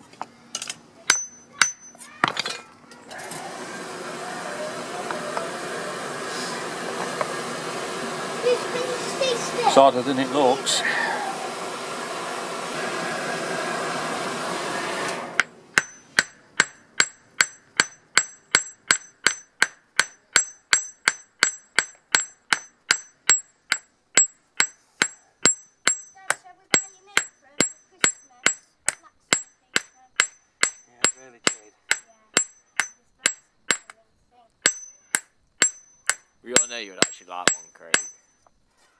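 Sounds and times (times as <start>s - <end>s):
hammer ringing on anvil: 1.1s - 2.1s, 15.8s - 34.0s, 34.6s - 38.5s
blower rushing air into forge: 3.1s - 15.5s.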